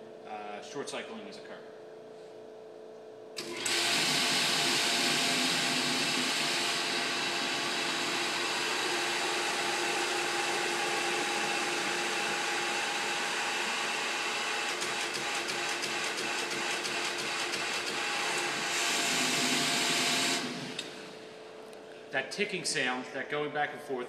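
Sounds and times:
electric pump humming: 3.4s - 21.9s.

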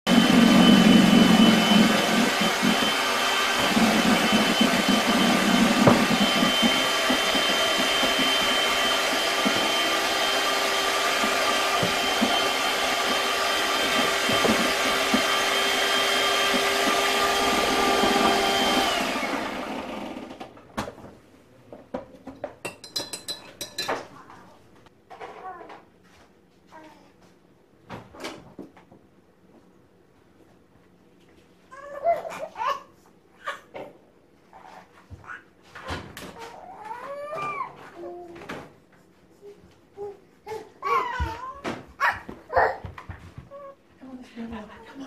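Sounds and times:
electric motor whining: 0.1s - 20.4s.

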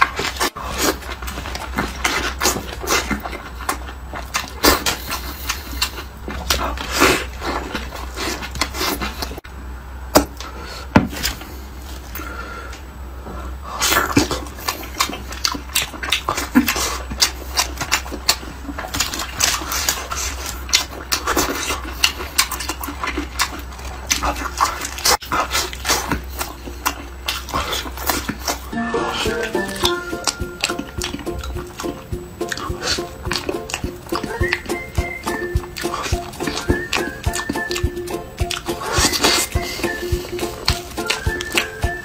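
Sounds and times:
wet chewing and lip-smacking: 0.0s - 9.4s, 13.8s - 42.0s
steady low hum: 0.0s - 42.0s.

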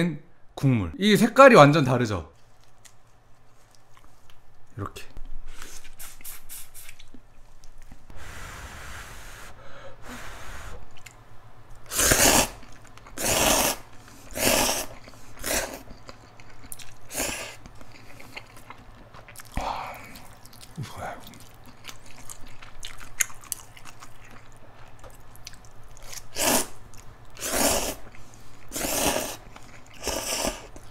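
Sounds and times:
person chewing: 10.9s - 11.2s, 12.1s - 30.9s
slurping noodles: 11.9s - 15.9s, 26.3s - 26.8s, 27.4s - 30.9s.

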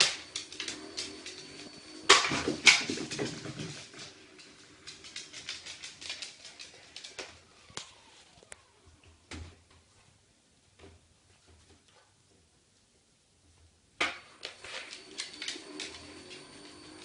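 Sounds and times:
dog claws clicking on wood floor: 2.1s - 7.4s.

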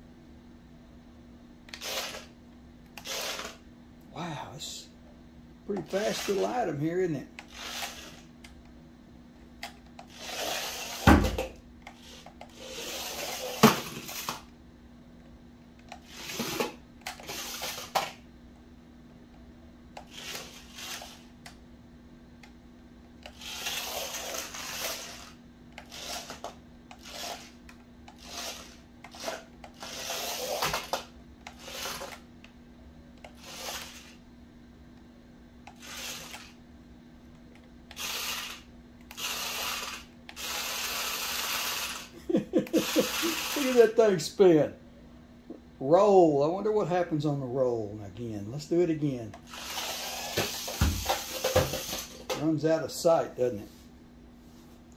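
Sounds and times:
toy car electric motors whirring: 1.7s - 3.6s, 5.8s - 6.6s, 7.4s - 8.3s, 10.0s - 11.2s, 11.8s - 14.5s, 15.9s - 18.2s, 20.0s - 21.4s, 23.2s - 32.2s, 33.2s - 34.2s, 35.7s - 36.6s, 37.9s - 44.0s, 49.5s - 52.2s.

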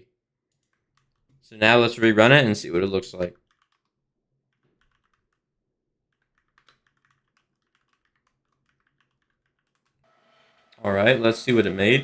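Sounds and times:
typing on computer keyboard: 0.6s - 1.3s, 3.3s - 5.4s, 6.1s - 10.0s.

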